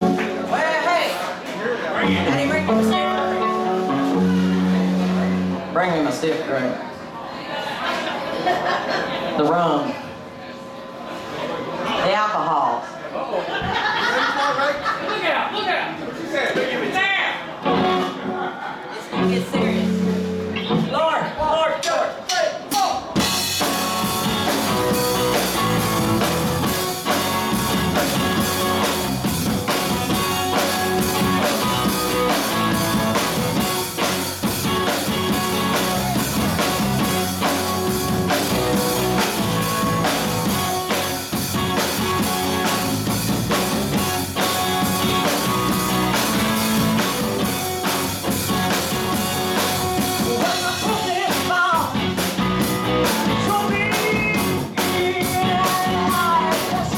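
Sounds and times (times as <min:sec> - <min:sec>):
electric guitar: 0:00.0 - 0:01.1, 0:02.0 - 0:05.8, 0:17.6 - 0:21.0, 0:23.2 - 0:56.9
drum kit beat: 0:00.0 - 0:01.2, 0:02.0 - 0:05.6, 0:19.2 - 0:56.9
electric bass: 0:02.0 - 0:05.8, 0:23.2 - 0:56.9.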